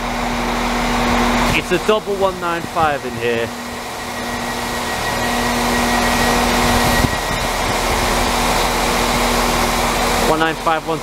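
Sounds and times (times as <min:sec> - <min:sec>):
train engine hum with whine: 0:00.0 - 0:11.0
low steady tone: 0:03.0 - 0:08.6.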